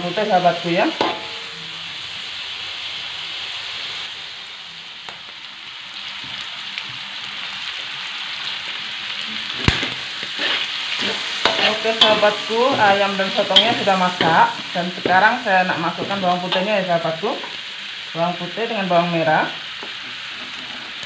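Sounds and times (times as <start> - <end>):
food sizzling in hot oil: 0.0 - 21.0
metal spatula clinking on wok: 1.0 - 1.4.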